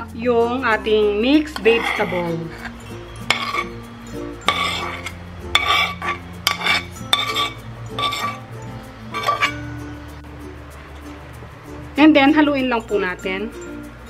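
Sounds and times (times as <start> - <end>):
background music: 0.0 - 14.0
metal spoon scraping a frying pan: 1.3 - 9.8.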